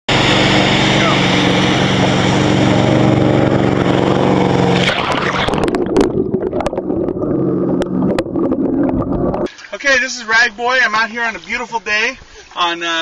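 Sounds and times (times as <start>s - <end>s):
boat engine running: 0.1s - 9.5s
rushing water and spray: 0.1s - 10.0s.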